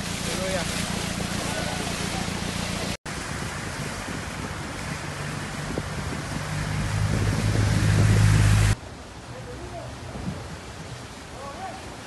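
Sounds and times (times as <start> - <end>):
pickup truck engine hum: 0.0 - 8.8
wind noise on microphone: 0.0 - 9.2, 9.9 - 12.0
rushing water: 0.0 - 12.0.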